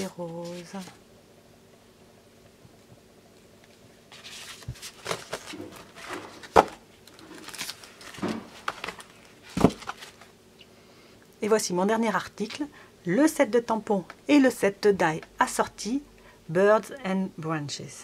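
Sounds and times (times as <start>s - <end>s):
paper and cellophane crinkling: 0.0s - 1.0s, 4.1s - 10.3s.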